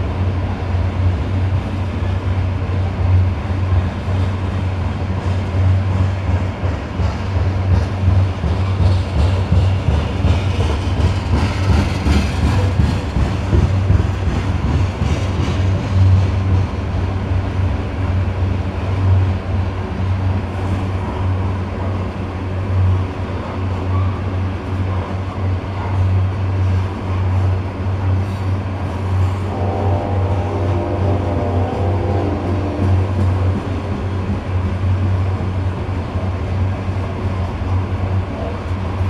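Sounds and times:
freight train wheels rumbling on rail: 0.0s - 39.0s.

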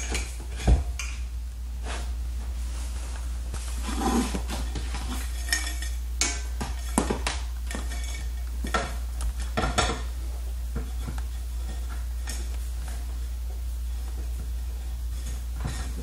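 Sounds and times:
steady low hum: 0.0s - 16.0s
metal tubes clinking: 4.8s - 7.0s, 7.6s - 9.9s.

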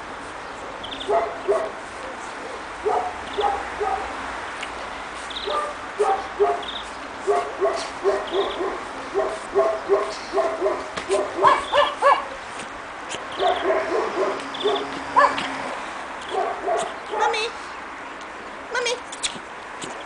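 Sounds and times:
puppies yapping: 0.9s - 1.8s, 2.8s - 4.2s, 5.2s - 12.4s, 13.1s - 15.6s, 16.2s - 17.4s.

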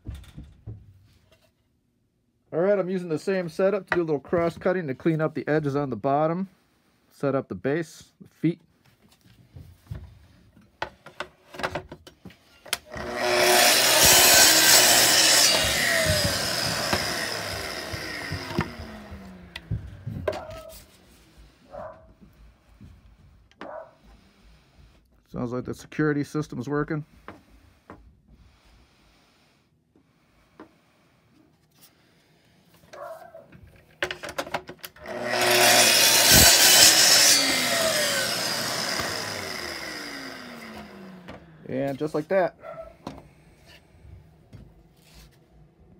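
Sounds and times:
clicks and knocks of saw rail: 10.8s - 20.6s, 33.8s - 41.5s
track saw cutting wood: 12.7s - 21.6s, 34.9s - 42.5s
saw motor winding down: 12.8s - 20.1s, 35.0s - 41.8s
saw clicks and knocks on rail: 13.9s - 20.5s.

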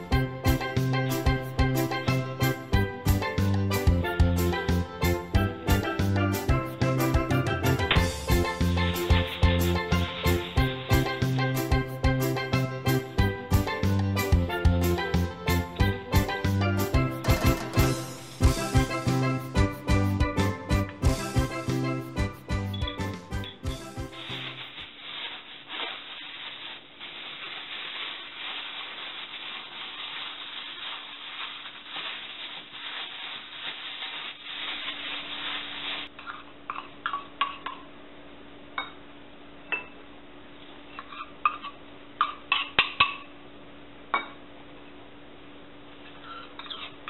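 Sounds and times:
plastic bag crinkling: 24.0s - 36.1s.

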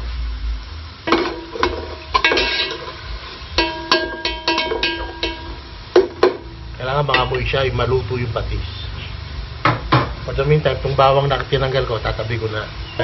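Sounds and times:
utensil knocking metal pot: 1.1s - 3.0s, 3.6s - 7.6s.

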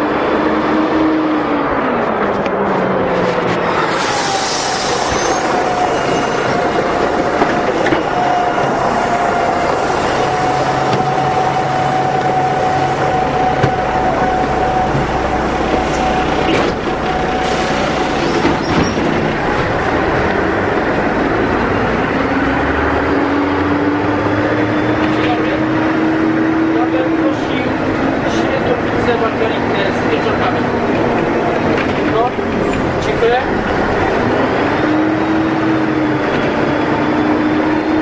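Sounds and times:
bus engine and road noise: 0.0s - 38.0s
held whine: 2.0s - 25.6s.

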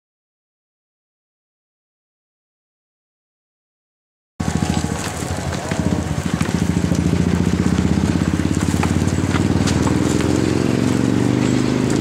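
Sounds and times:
small engine running: 4.4s - 12.0s.

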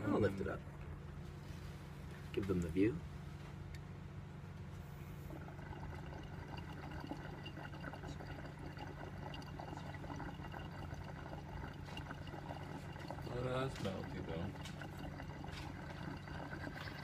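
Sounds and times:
low steady hum: 0.0s - 17.0s
water bubbling in glass pipe: 5.3s - 17.0s.

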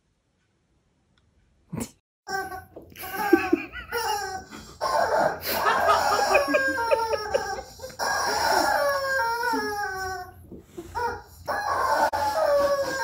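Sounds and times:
squeaky dog toy squeaking: 3.9s - 10.3s, 10.9s - 13.0s.

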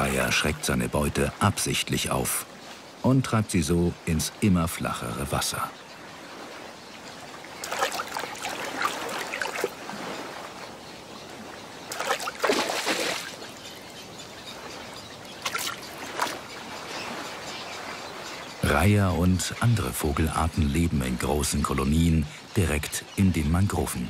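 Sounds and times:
shallow water splashing: 6.0s - 20.4s.

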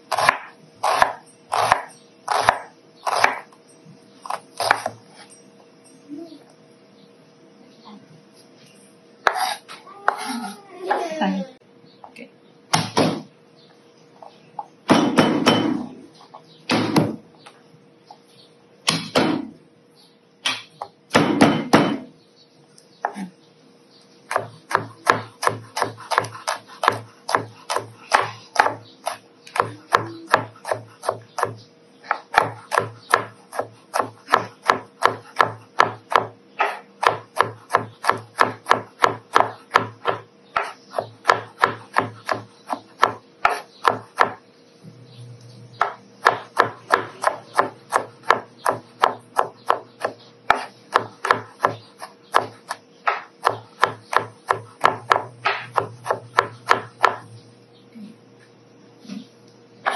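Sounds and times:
knife chopping on cutting board: 0.1s - 3.4s, 4.2s - 5.0s, 9.2s - 10.3s, 14.9s - 15.9s, 18.9s - 19.5s, 20.4s - 22.1s, 24.3s - 44.4s, 45.8s - 57.3s.

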